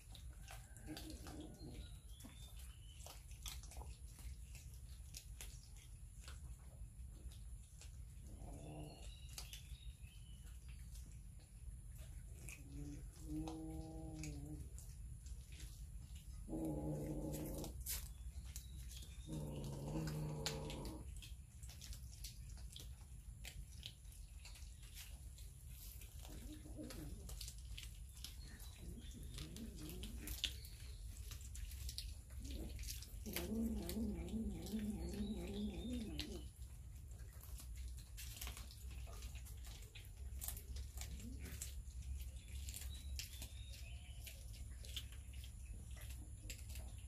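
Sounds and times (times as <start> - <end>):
cats chewing fish: 0.0 - 47.0
cat growling: 0.8 - 1.9, 12.4 - 14.9, 16.4 - 18.0, 19.2 - 21.2, 26.3 - 27.4, 28.8 - 30.5, 32.4 - 36.5.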